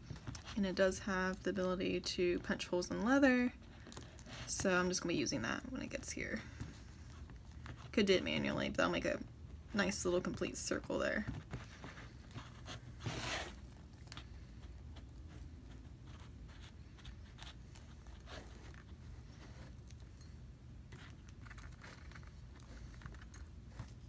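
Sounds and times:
low room hum: 0.0s - 24.0s
mask handling rustle: 9.5s - 24.0s
small scrapes and clicks: 20.9s - 24.0s.

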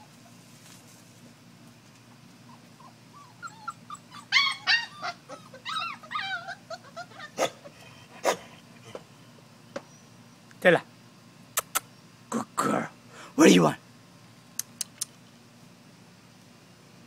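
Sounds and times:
puppies whining and yelping: 2.4s - 9.0s.

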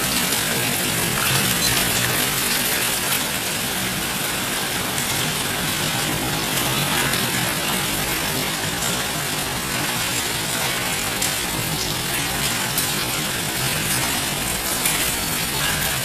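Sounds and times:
hailstones clattering on concrete and water: 0.0s - 16.0s.

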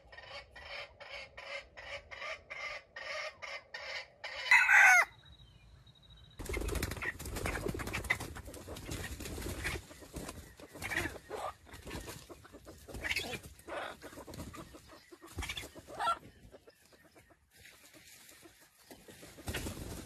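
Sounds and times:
chicken clucking: 0.0s - 5.1s, 6.5s - 20.0s.

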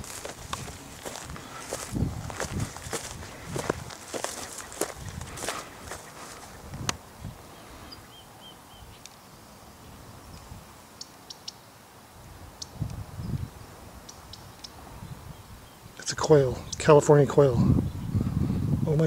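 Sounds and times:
footsteps on dry brush: 0.0s - 7.0s
faint bird calls: 1.1s - 1.9s, 2.7s - 9.1s.

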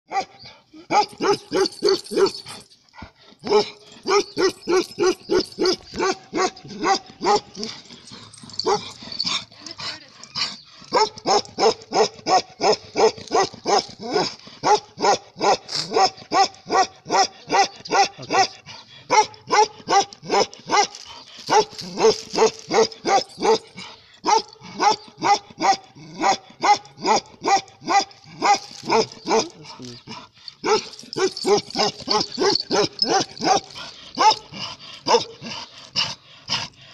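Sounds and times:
dog barking rapidly: 0.9s - 2.4s, 3.5s - 7.6s, 10.9s - 20.9s, 24.3s - 29.6s, 30.6s - 35.4s.

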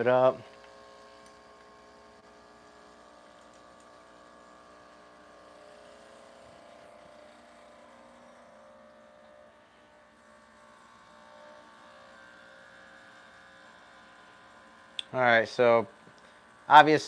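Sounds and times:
espresso machine pump humming: 0.0s - 17.0s.

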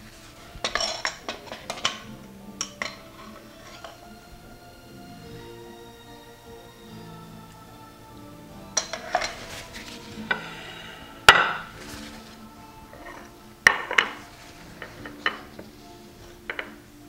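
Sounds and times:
utensils clinking on plates: 0.0s - 4.1s, 8.7s - 17.0s
soft background music: 0.0s - 17.0s.

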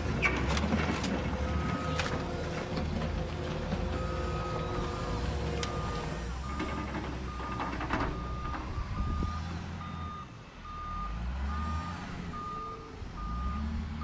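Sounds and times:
simulated diesel engine drone: 0.0s - 14.0s
reversing beep: 1.4s - 2.1s, 3.9s - 14.0s.

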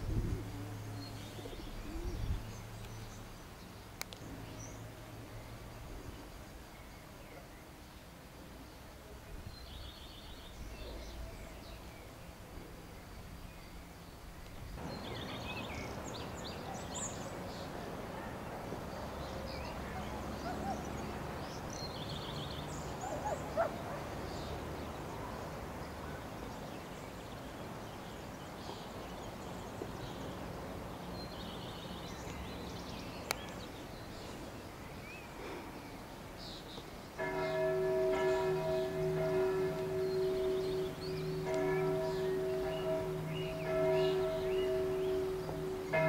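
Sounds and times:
faint open-air ambience: 0.0s - 46.0s
church bell ringing: 37.2s - 46.0s.

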